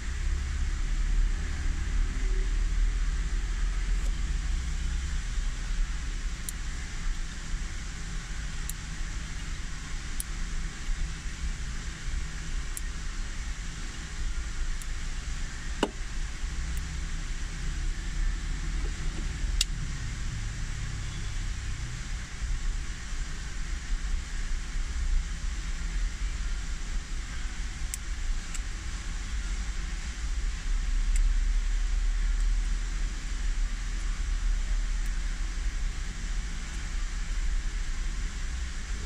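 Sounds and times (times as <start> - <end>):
low background rumble: 0.0 - 39.0
click: 12.7 - 12.9, 19.2 - 19.8, 27.9 - 28.7
faint sharp ticks: 19.2 - 19.8.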